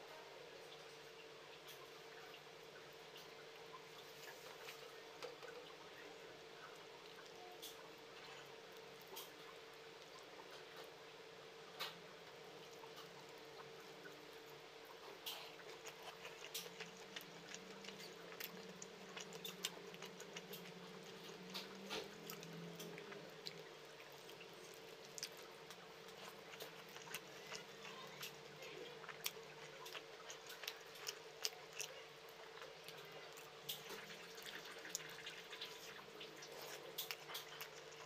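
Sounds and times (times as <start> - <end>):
faint steady hum: 0.0 - 38.0
wet chewing mouth clicks: 15.0 - 38.0.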